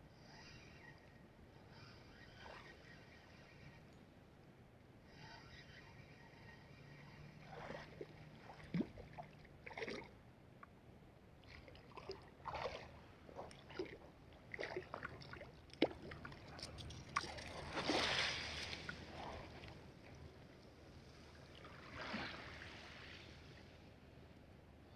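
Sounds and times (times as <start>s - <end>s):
water splashing and sloshing: 6.8s - 10.8s, 11.4s - 23.8s.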